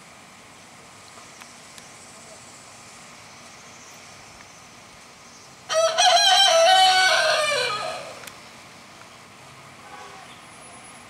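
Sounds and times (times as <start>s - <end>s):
rooster crowing: 5.7s - 8.2s.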